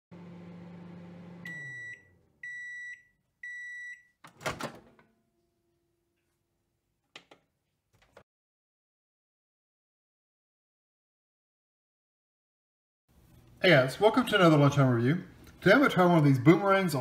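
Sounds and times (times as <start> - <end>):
microwave oven humming: 0.1 - 3.7.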